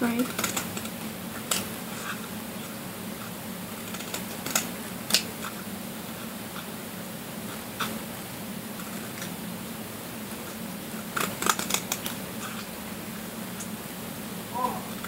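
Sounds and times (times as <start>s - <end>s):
scissors snipping: 11.2s - 12.6s.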